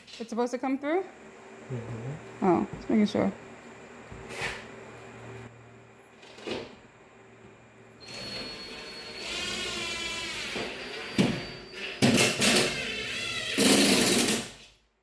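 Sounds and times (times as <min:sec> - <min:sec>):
cordless drill driving screws: 0:08.8 - 0:11.2, 0:12.3 - 0:14.5.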